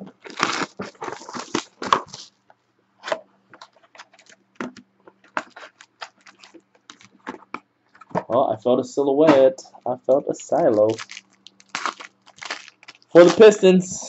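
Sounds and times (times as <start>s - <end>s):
plastic wrapping crinkling and tearing: 0.0s - 2.4s, 3.6s - 4.4s, 5.2s - 7.3s, 10.1s - 13.6s.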